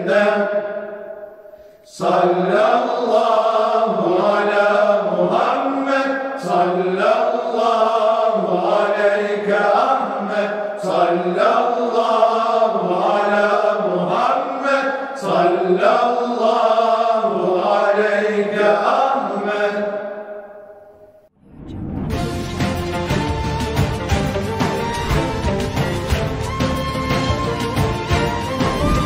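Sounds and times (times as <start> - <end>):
male choir singing a hymn: 0.0 - 1.1, 1.9 - 20.6.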